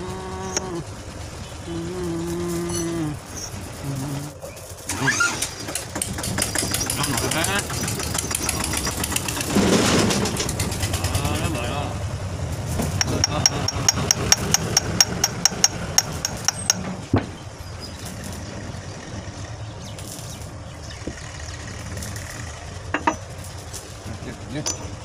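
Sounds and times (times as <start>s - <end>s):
low engine rumble: 0.0s - 25.0s
hammer tapping on metal: 12.8s - 17.0s.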